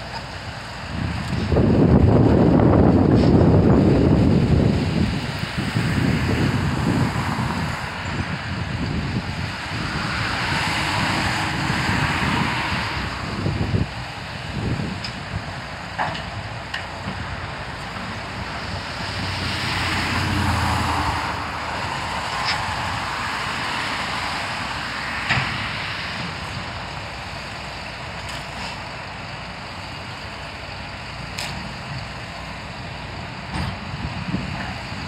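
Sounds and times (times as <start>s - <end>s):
distant diesel machinery working: 0.0s - 35.0s.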